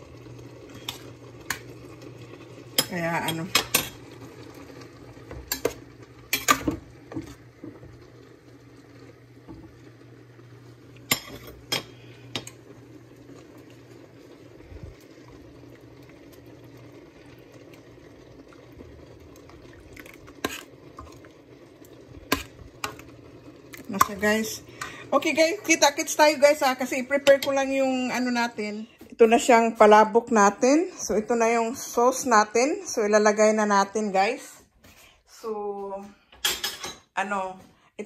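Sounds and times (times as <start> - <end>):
sauce bubbling in a pan: 0.0 - 28.4.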